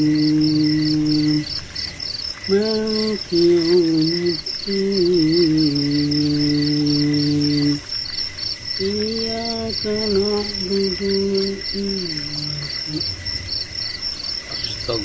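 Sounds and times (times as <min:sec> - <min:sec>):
crickets chirping: 0:00.0 - 0:15.0.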